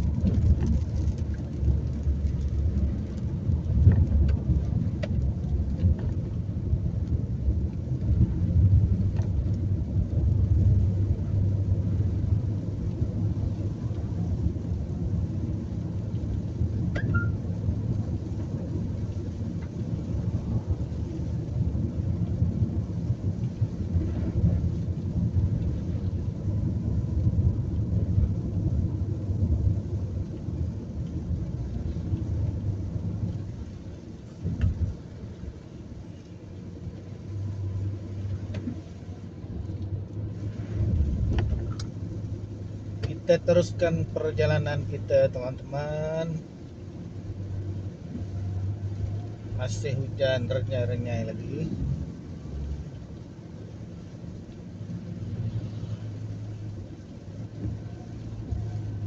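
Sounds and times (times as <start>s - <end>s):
car driving on wet road: 0.0s - 59.0s
rain on windscreen: 0.0s - 59.0s.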